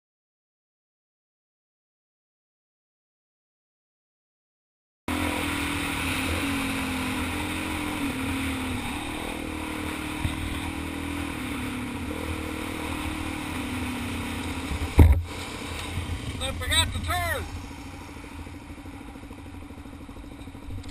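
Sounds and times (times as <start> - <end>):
motorcycle engine running: 5.1 - 20.9
trail rumble: 5.1 - 20.9
wind: 5.1 - 20.9
loud thump: 14.7 - 15.3.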